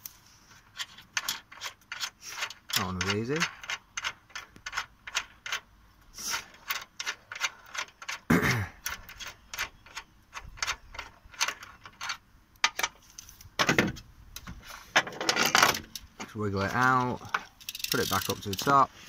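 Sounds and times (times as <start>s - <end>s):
ratchet wrench clicking: 17.5s - 18.7s.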